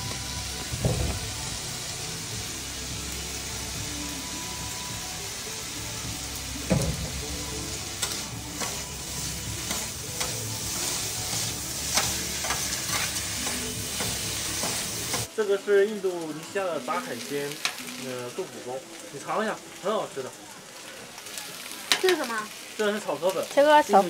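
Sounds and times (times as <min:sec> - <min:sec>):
noodles sizzling on griddle: 0:00.0 - 0:24.0
metal spatulas scraping griddle: 0:07.7 - 0:15.3.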